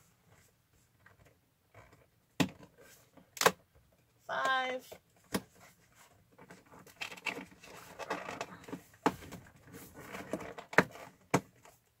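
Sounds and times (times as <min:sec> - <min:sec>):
cardboard scraping and rustling: 0:05.4 - 0:11.8.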